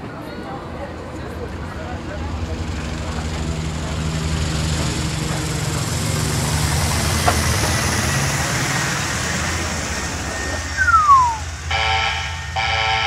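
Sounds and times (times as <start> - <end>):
low engine drone: 1.0 - 12.7.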